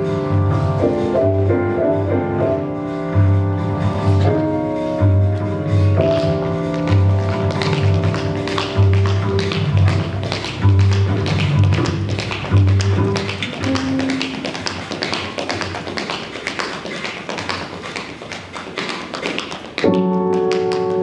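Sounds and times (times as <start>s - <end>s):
recorded music with bass line: 0.0s - 14.1s
tap shoes on hard floor: 6.0s - 21.0s.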